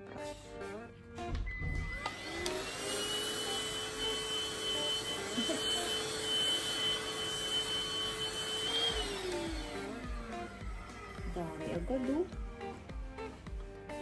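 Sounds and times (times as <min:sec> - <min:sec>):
handheld vacuum cleaner whine: 0:01.5 - 0:12.3.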